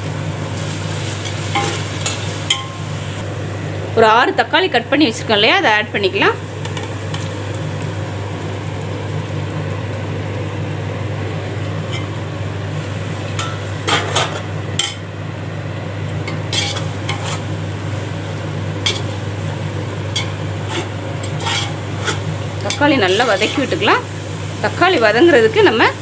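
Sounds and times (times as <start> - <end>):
tomatoes sizzling in oil: 0.0 - 26.0
ladle scraping metal pot: 16.3 - 17.5, 20.1 - 23.8.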